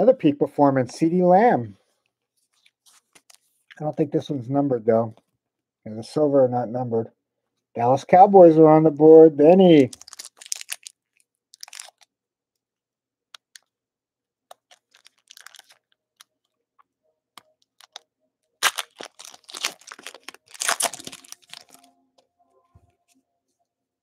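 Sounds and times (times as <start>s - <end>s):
foil wrapper crinkling: 9.8s - 12.1s, 14.5s - 16.3s, 17.6s - 18.0s, 18.6s - 21.9s.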